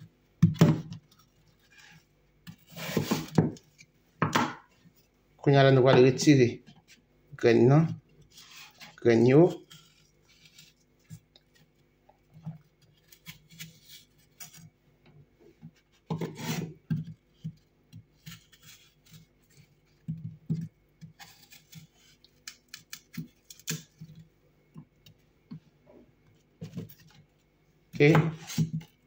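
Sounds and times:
knife slicing apple: 0:01.8 - 0:03.6, 0:12.8 - 0:14.6, 0:16.0 - 0:16.8, 0:17.4 - 0:24.1, 0:28.0 - 0:29.0.

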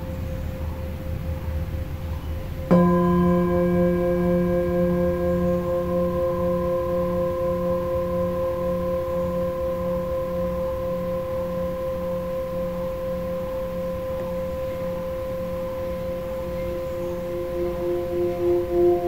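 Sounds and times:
singing bowls ringing: 0:00.0 - 0:19.0.

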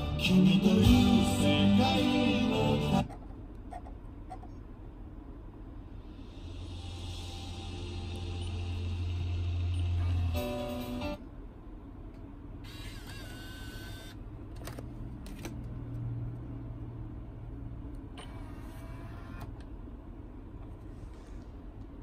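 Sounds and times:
steady low hum: 0:00.0 - 0:22.0
motorized screen mechanism whirring: 0:12.6 - 0:14.2, 0:18.2 - 0:19.6.

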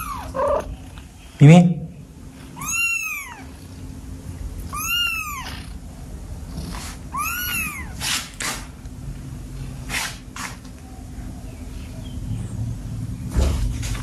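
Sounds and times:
kitten meowing: 0:00.0 - 0:00.7, 0:02.6 - 0:03.6, 0:04.7 - 0:05.8, 0:07.1 - 0:08.3.

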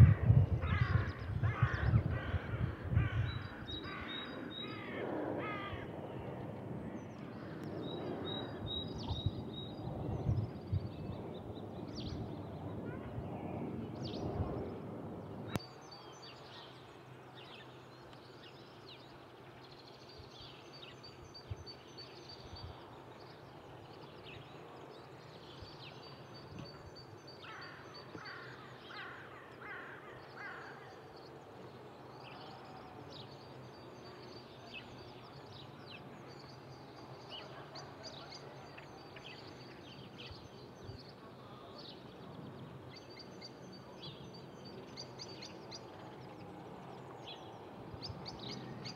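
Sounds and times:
birds chirping and trilling: 0:00.0 - 0:05.8.

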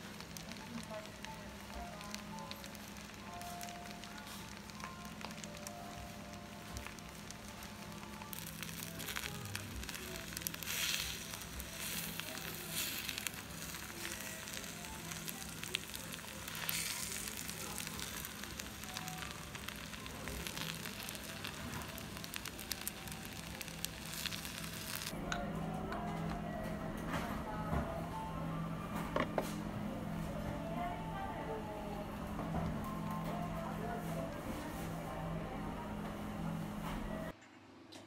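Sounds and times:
food sizzling in stone bowl: 0:00.0 - 0:25.2.

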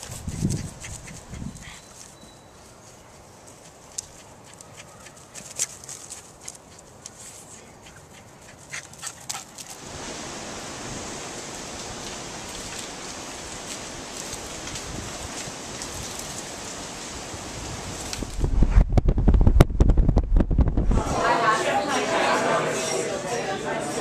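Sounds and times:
wind through trees: 0:00.0 - 0:22.1
faint dog sounds: 0:00.4 - 0:09.6.

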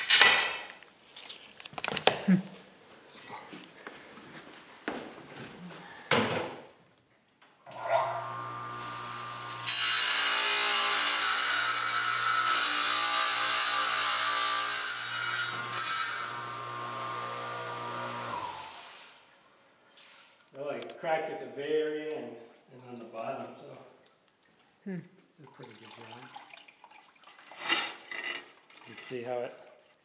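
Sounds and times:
tile saw motor humming: 0:07.7 - 0:18.8
saw blade cutting tile: 0:07.8 - 0:19.0.

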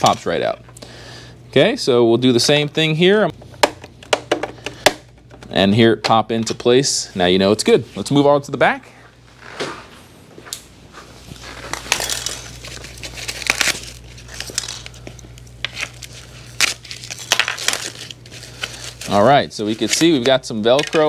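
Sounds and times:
plastic panels clicking and knocking: 0:03.6 - 0:05.5.

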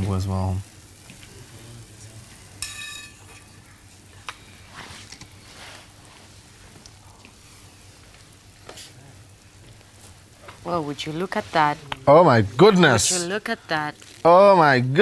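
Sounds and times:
faint crackling hiss: 0:00.0 - 0:15.0
chopsticks clinking on plate: 0:02.6 - 0:03.6.

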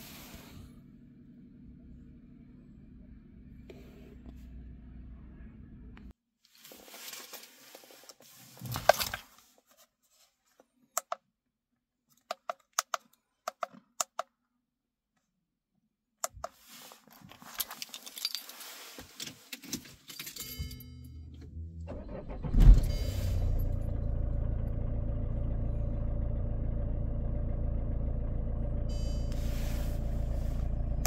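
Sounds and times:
rustling handling noise: 0:06.4 - 0:10.9, 0:16.4 - 0:20.4
keys jangling: 0:17.2 - 0:18.8, 0:19.6 - 0:21.2.

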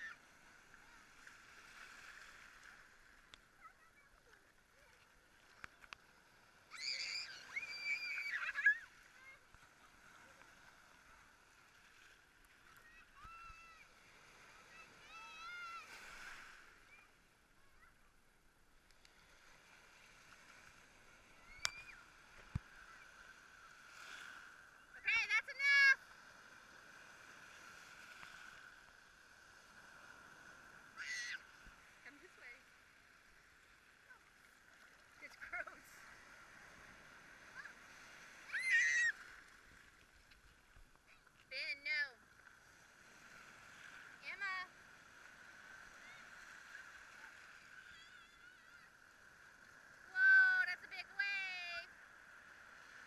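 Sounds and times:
young child squealing: 0:00.0 - 0:00.2, 0:06.7 - 0:09.0, 0:15.0 - 0:15.9, 0:21.4 - 0:22.0, 0:31.0 - 0:31.5, 0:38.4 - 0:39.3, 0:47.8 - 0:48.9
faint surf washing: 0:00.0 - 0:53.0.

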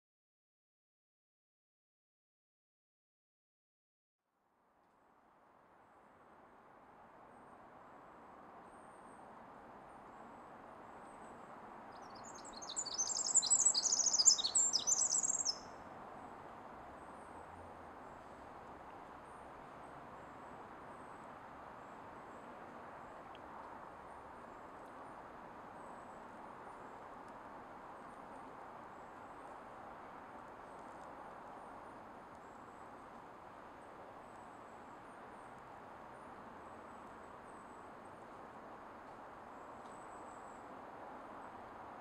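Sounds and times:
outdoor ambience hiss: 0:04.4 - 0:42.0
wren trilling song: 0:12.0 - 0:15.7
high bird notes: 0:12.8 - 0:15.6.

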